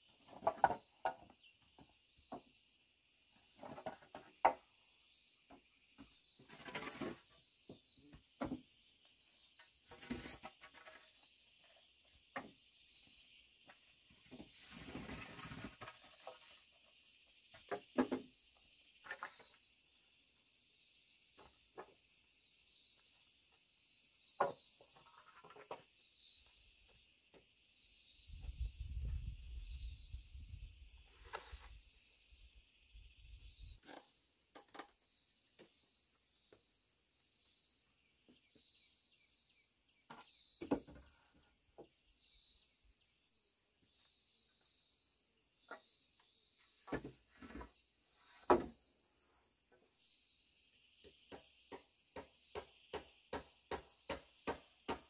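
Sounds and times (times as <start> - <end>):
insects chirring: 0.0 - 55.0.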